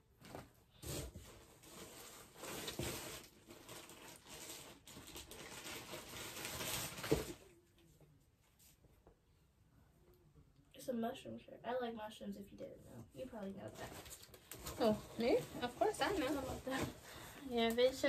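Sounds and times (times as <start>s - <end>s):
plastic packaging rustling: 0.2s - 7.5s, 13.6s - 18.0s.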